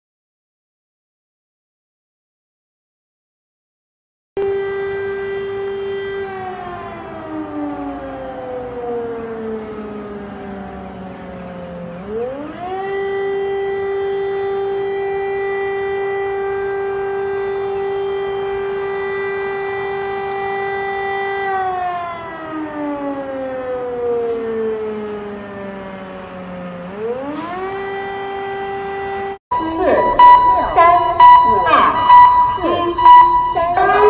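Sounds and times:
air raid siren wailing: 4.4 - 34.0.

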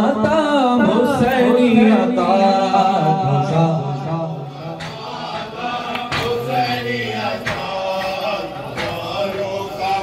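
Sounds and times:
men chanting a lament in chorus: 0.0 - 10.0
rhythmic chest-beating strikes: 3.4 - 10.0.

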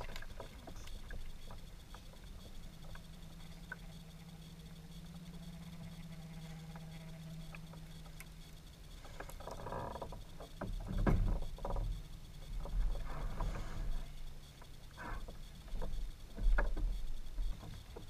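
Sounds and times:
steady low hum: 0.0 - 18.0
fish splashing and knocking on hull: 10.6 - 11.8.

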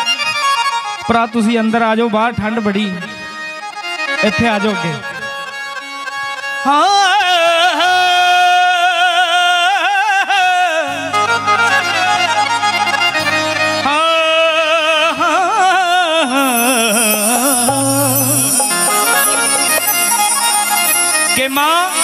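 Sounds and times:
electronic keyboard melody: 11.0 - 22.0.

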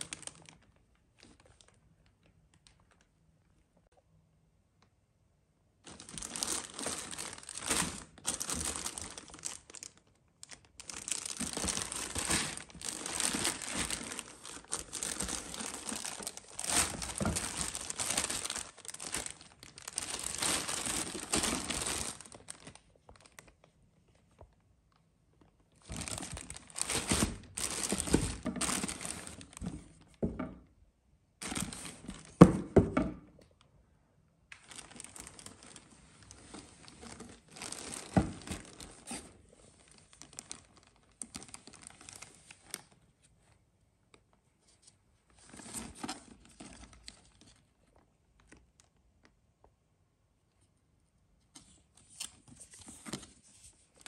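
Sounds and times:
plastic bag crinkling: 0.0 - 3.1, 5.8 - 24.5, 25.4 - 30.2, 31.4 - 32.5, 34.6 - 43.0.

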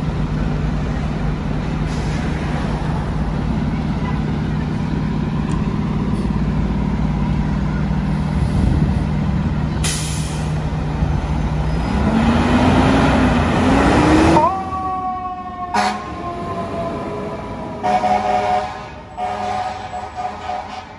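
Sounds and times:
diesel engine idling: 0.0 - 20.5
horn blasts: 15.7 - 16.2, 17.8 - 20.9.

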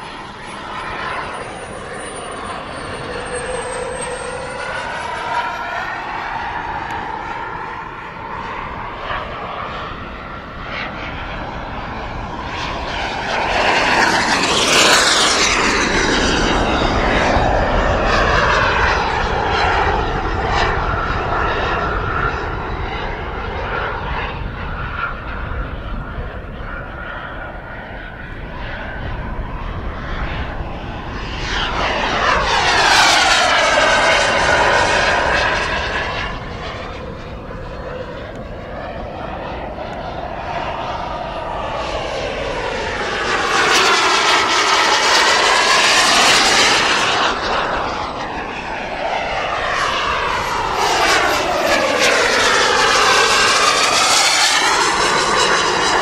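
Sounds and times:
model jet turbine whine flying past: 0.0 - 56.0.

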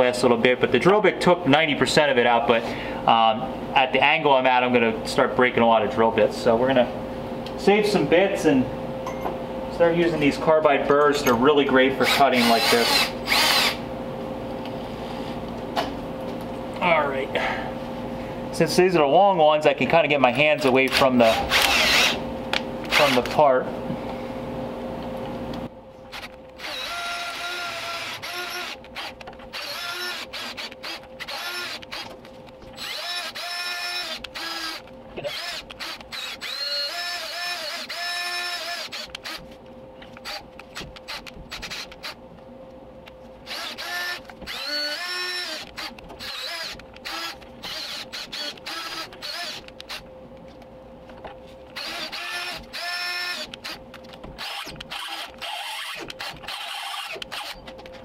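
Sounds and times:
power drill whining: 12.0 - 13.8, 20.9 - 22.2, 26.1 - 39.5, 40.2 - 42.2, 43.5 - 50.0, 51.7 - 53.8, 54.4 - 57.7.

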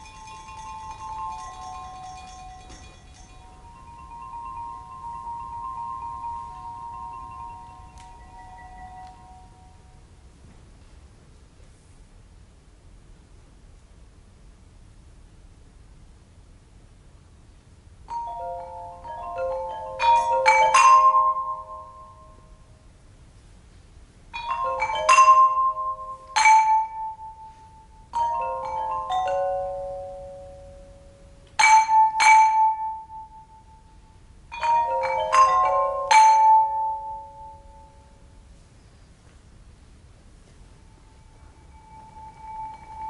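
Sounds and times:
tuned pipes struck with mallets: 0.0 - 9.9, 18.1 - 22.6, 24.4 - 38.2, 40.8 - 43.0.

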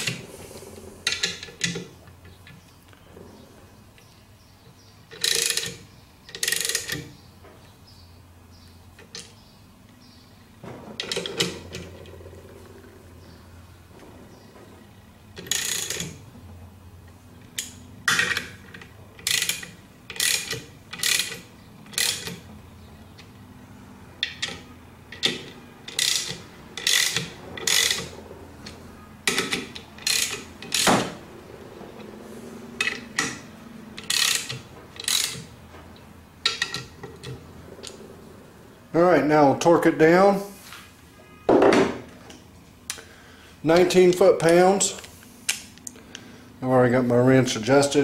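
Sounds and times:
socket ratchet clicking: 15.4 - 16.2, 17.5 - 22.5, 24.2 - 28.1, 29.3 - 31.1, 34.0 - 35.5.

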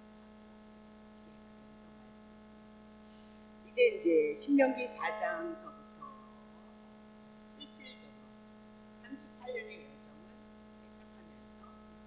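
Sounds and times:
steady electrical hum: 0.0 - 12.0.

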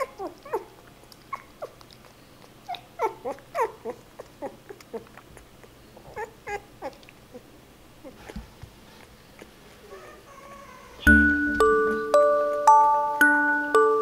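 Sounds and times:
puppy squeaking and whimpering: 0.0 - 8.4, 9.3 - 11.2.

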